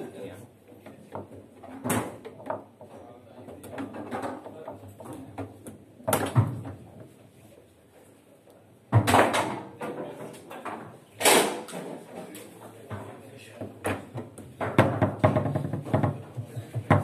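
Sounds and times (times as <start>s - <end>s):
foosball ball clacking: 0.8s - 6.9s, 12.9s - 17.0s
loud sharp bangs: 11.2s - 11.7s.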